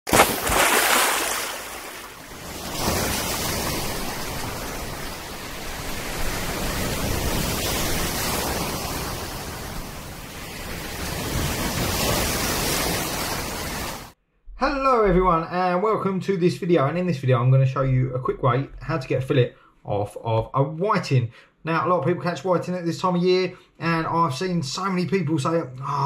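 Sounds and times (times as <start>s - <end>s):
sea surf breaking at shoreline: 0.1s - 14.2s.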